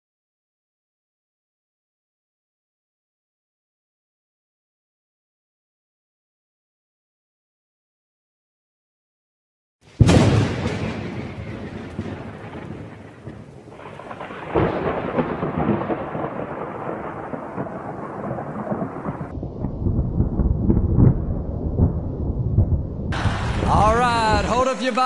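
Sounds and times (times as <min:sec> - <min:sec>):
thunder rumbling: 0:09.9 - 0:25.0
rain hiss: 0:23.2 - 0:25.0.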